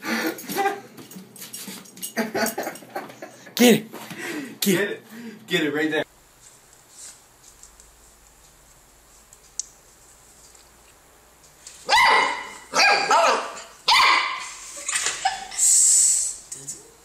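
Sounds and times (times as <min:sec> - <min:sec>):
puppy barking: 0:11.9 - 0:14.6.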